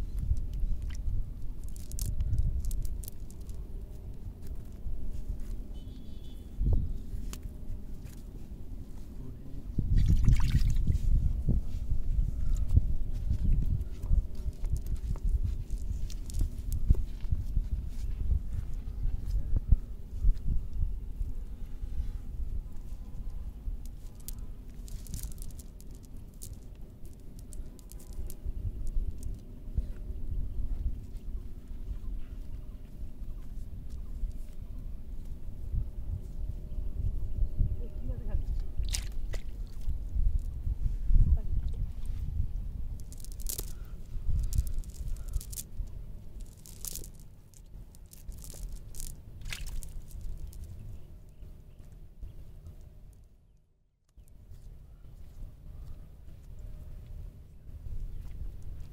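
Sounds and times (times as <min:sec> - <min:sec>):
net rustling crackles: 0:01.5 - 0:03.6, 0:23.9 - 0:29.4, 0:42.9 - 0:50.8.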